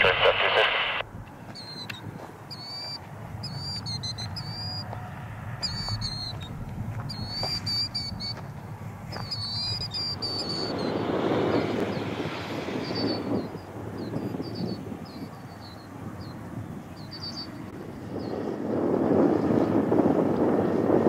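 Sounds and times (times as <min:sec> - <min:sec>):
rushing jet noise: 0:00.0 - 0:01.1, 0:04.8 - 0:16.2
distant jet engines rumbling: 0:00.0 - 0:21.0
bird chirping: 0:01.3 - 0:18.5.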